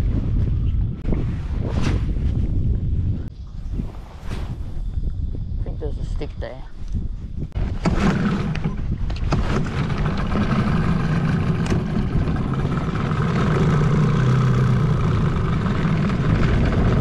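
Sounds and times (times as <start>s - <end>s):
outboard motor running: 7.6s - 17.0s.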